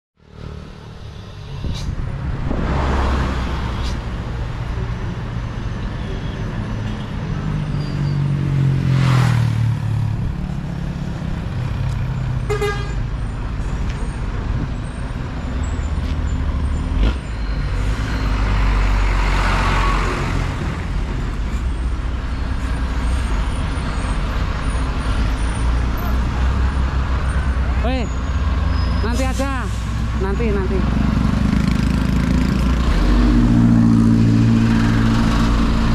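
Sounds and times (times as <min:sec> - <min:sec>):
diesel trucks rumbling: 0:00.2 - 0:35.9
vehicles passing close: 0:00.2 - 0:35.9
vehicle horn toot: 0:12.5 - 0:13.0.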